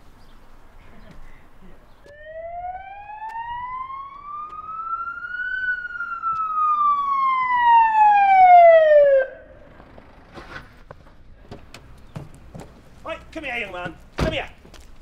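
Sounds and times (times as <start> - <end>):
police siren wailing: 2.1 - 9.7.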